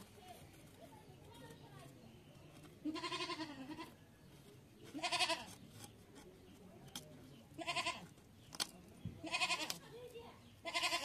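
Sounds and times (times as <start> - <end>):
goat bleating: 2.8 - 4.0, 4.9 - 5.5, 7.6 - 8.0, 9.2 - 9.8, 10.6 - 11.0.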